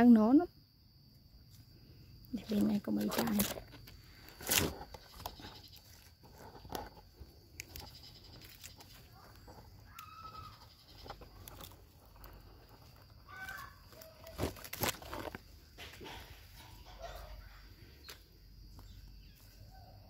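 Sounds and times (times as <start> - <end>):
leaves rustling against microphone: 2.3 - 17.7
animal calls in background: 7.7 - 11.7, 13.2 - 14.4.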